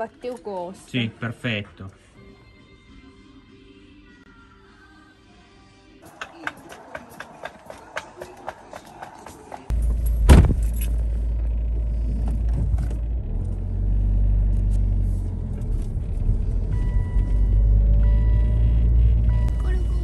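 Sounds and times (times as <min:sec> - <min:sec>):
vehicle engine rumbling: 0:06.0 - 0:20.0.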